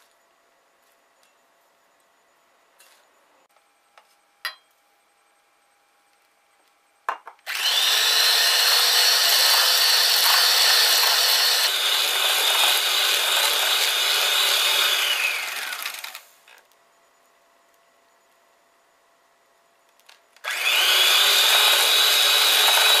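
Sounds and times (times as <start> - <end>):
electric hand mixer whining: 7.5 - 16.3, 20.4 - 23.0.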